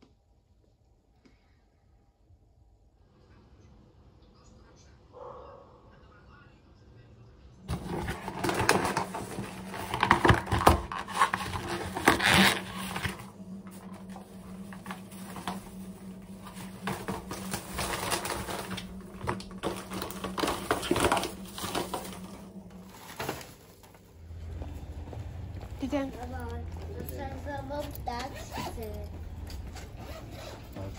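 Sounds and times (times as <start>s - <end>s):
steady low hum: 0.4s - 30.9s
paper and plastic bags rustling: 7.7s - 24.4s.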